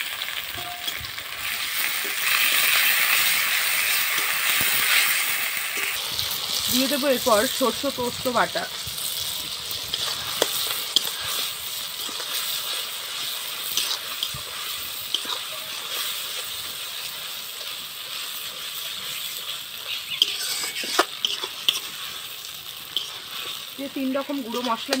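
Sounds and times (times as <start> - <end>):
vegetables sizzling in oil: 0.0 - 25.0
metal spatula scraping pan: 9.8 - 16.5, 19.1 - 25.0.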